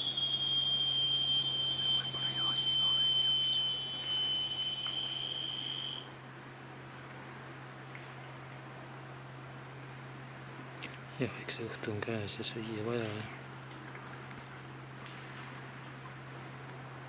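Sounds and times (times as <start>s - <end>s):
loud high-pitched insect drone: 0.0s - 6.2s
faint insect drone: 0.0s - 17.0s.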